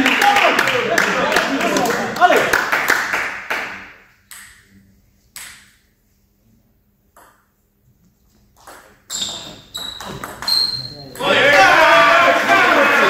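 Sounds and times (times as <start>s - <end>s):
table tennis ball pings: 8.6s - 11.3s.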